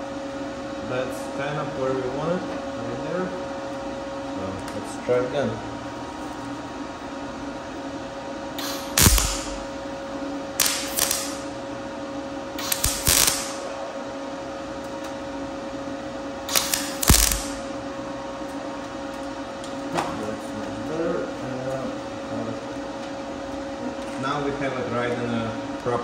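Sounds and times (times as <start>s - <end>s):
welder bursts: 8.6s - 9.8s, 10.6s - 11.5s, 12.6s - 13.7s, 16.5s - 17.7s.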